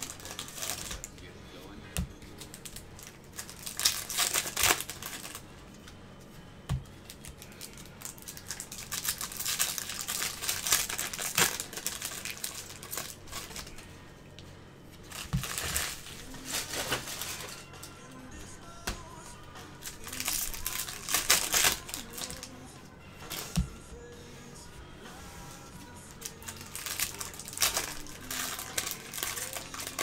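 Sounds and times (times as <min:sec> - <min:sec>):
cards rustling: 0:00.0 - 0:01.3, 0:02.1 - 0:05.9, 0:07.0 - 0:13.9, 0:15.0 - 0:17.6, 0:19.8 - 0:22.6, 0:26.1 - 0:30.0
wrappers crinkling and tearing: 0:00.0 - 0:01.3, 0:02.3 - 0:05.4, 0:07.1 - 0:13.8, 0:15.1 - 0:17.6, 0:19.8 - 0:22.5, 0:26.2 - 0:30.0.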